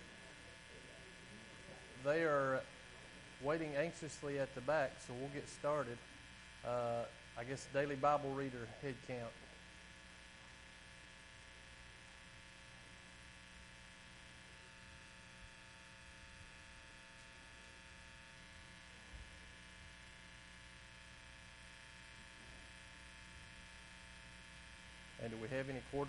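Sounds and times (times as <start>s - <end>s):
electrical hum: 0.0s - 26.0s.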